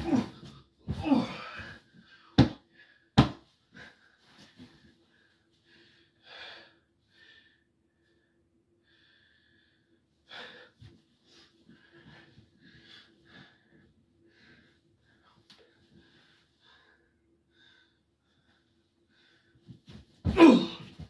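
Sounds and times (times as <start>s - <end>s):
person breathing heavily: 0.0s - 7.7s.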